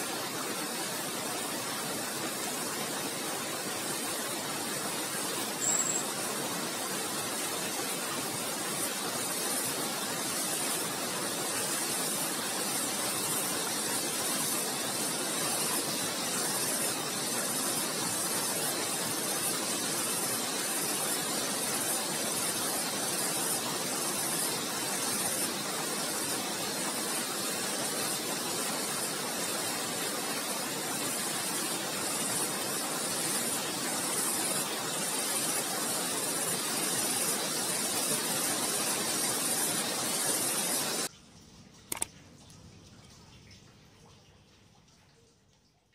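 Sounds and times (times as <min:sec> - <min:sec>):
flowing water rushing: 0:00.0 - 0:41.1
single click: 0:41.9 - 0:42.1.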